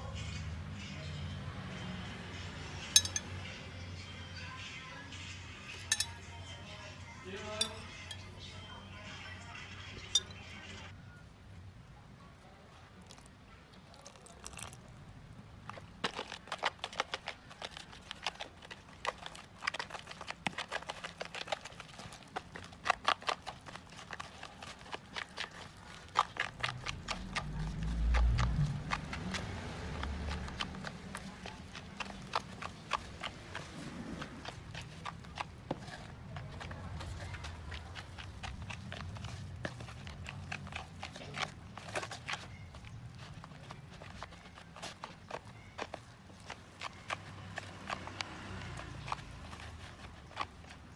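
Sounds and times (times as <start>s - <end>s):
spoon scraping plastic bowl: 15.7s - 50.9s.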